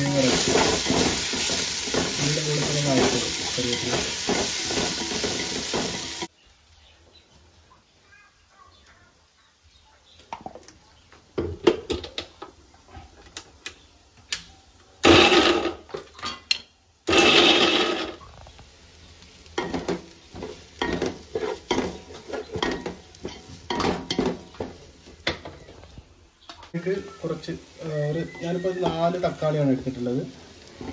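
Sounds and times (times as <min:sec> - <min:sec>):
pots and dishes clinking: 0:00.0 - 0:06.3, 0:15.0 - 0:18.2, 0:19.6 - 0:25.8.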